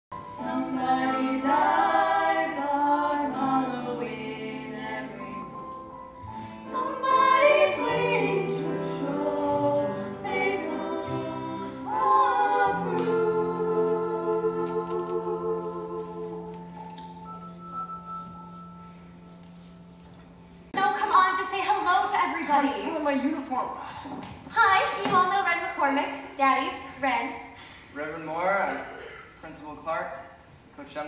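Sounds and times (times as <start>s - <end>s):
women singing in harmony: 0.1s - 5.7s, 6.4s - 16.8s
held musical accompaniment: 0.1s - 21.2s.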